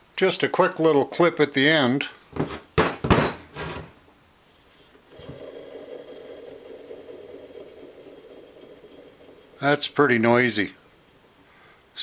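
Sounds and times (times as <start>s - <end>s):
alternator bearings whirring: 5.1s - 11.3s.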